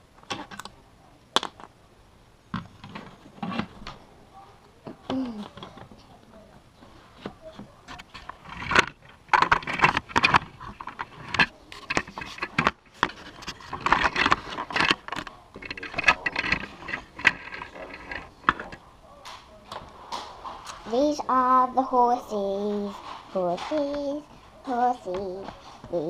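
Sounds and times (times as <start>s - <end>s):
plastic toy bricks rattling: 7.9s - 18.8s.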